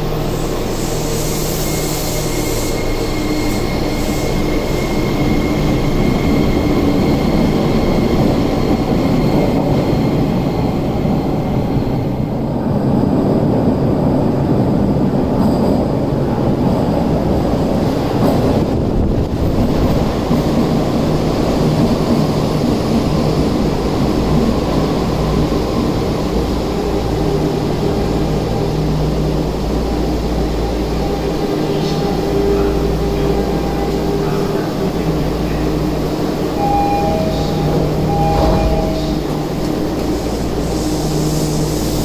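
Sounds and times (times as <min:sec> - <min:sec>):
subway train rumbling and whining: 0:00.0 - 0:42.0
short door tones: 0:36.6 - 0:39.8.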